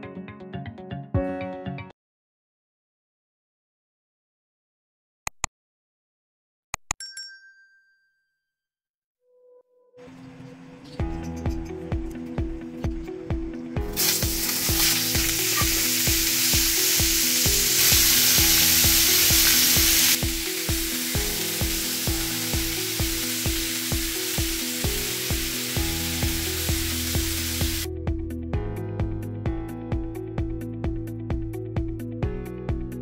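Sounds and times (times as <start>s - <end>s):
background music with steady beat: 11.0s - 33.0s
spatula turning meat: 14.0s - 23.8s
meat sizzling in oil: 14.0s - 27.8s.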